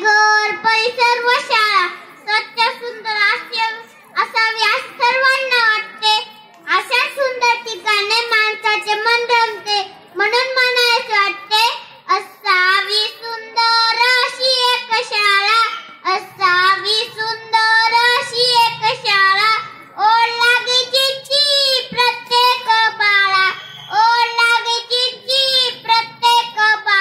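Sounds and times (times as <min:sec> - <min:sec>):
child singing into microphone: 0:00.0 - 0:27.0.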